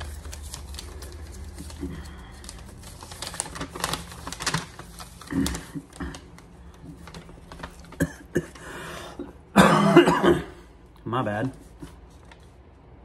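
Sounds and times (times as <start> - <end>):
packaging crinkling and rustling: 0.0 - 8.7.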